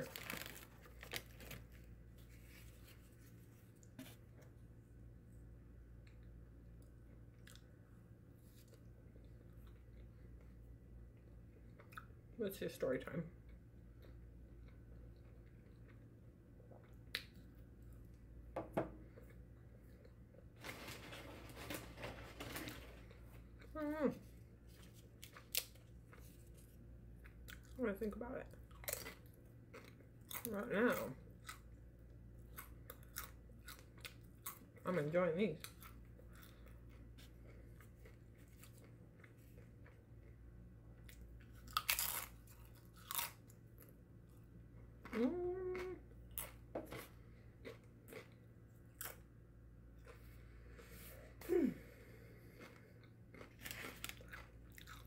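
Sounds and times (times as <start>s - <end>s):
tortilla chip crunching: 0.0s - 4.0s, 24.6s - 27.7s, 28.7s - 30.6s, 41.0s - 44.0s, 52.5s - 55.0s
low steady hum: 0.0s - 55.0s
person chewing food: 5.9s - 12.3s, 28.5s - 30.5s, 31.2s - 34.8s, 35.6s - 55.0s
faint chewing: 35.6s - 40.4s, 50.0s - 55.0s
crunching: 52.6s - 55.0s.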